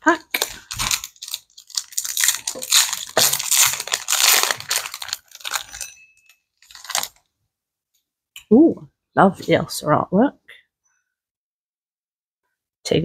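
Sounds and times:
foil wrapper tearing and crinkling: 0.2s - 5.9s, 6.6s - 7.2s.

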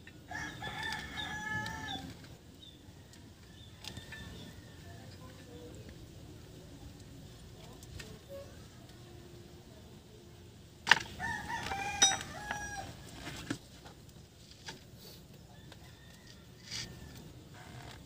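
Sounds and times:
rooster crowing: 0.3s - 2.2s, 11.2s - 13.1s, 15.5s - 17.9s.

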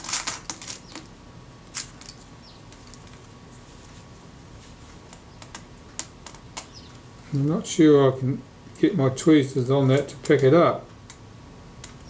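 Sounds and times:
small metal parts clicking: 0.0s - 1.1s, 1.7s - 3.2s.

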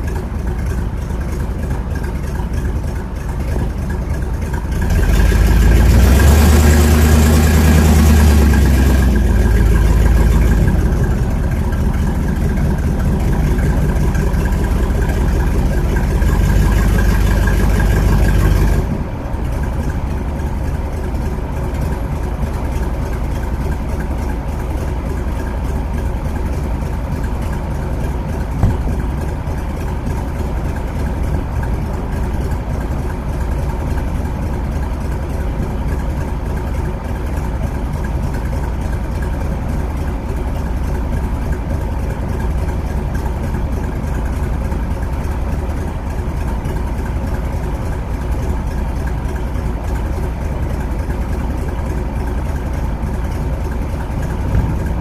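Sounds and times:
car engine idling: 0.0s - 55.0s
brief tap: 28.6s - 28.9s.

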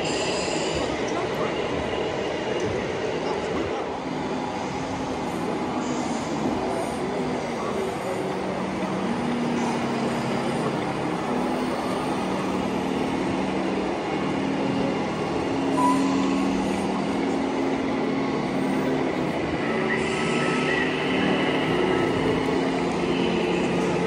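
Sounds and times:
simulated diesel engines humming: 8.4s - 24.0s.

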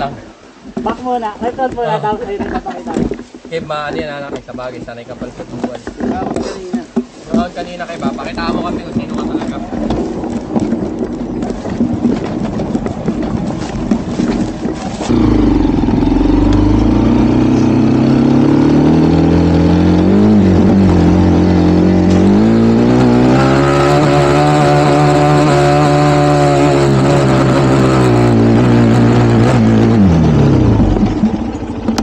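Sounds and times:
dirt bike engine revving: 15.1s - 32.0s.

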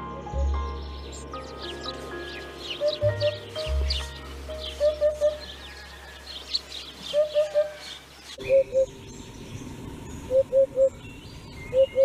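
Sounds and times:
faint high bird chirps: 0.3s - 12.0s
hoopoe calling low hoop notes: 1.0s - 8.9s.

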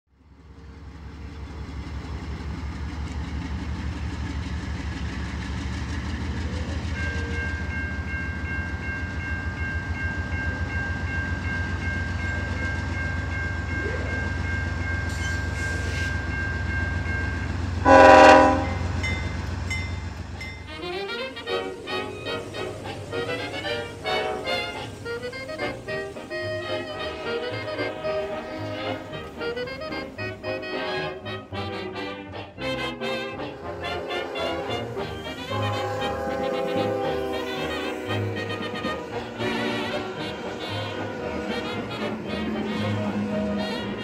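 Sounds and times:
diesel locomotives rumbling: 0.1s - 44.0s
locomotive horn blast: 17.8s - 19.4s, 20.6s - 44.0s.

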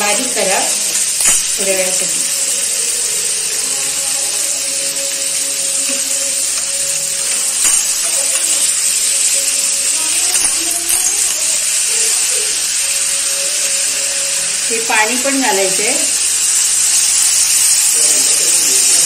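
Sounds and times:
clams sizzling in oil: 0.0s - 19.0s
shells clinking against ladle: 1.0s - 1.6s, 7.6s - 9.5s.

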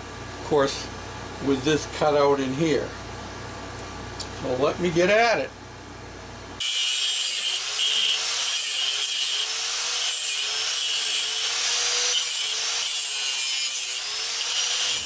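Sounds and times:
cut-off grinder cutting steel: 6.6s - 15.0s.

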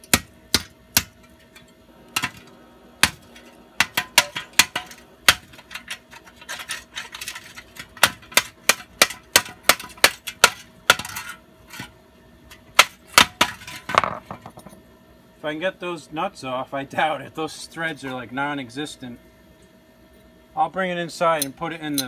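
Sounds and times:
metal scraping: 1.2s - 8.0s.

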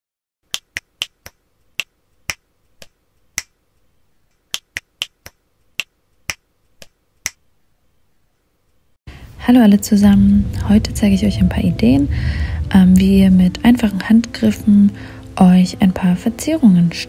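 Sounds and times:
rhythmic sharp clicks: 0.5s - 3.6s, 4.3s - 7.4s.

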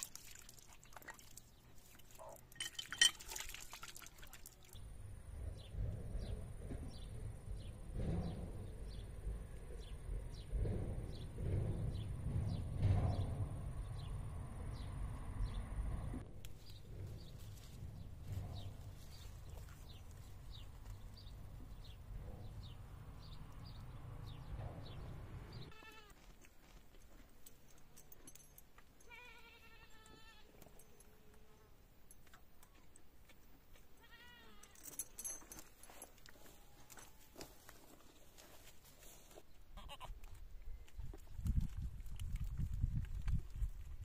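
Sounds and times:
goat bleating: 25.7s - 26.2s, 29.1s - 30.5s, 34.0s - 34.8s, 39.8s - 40.2s.

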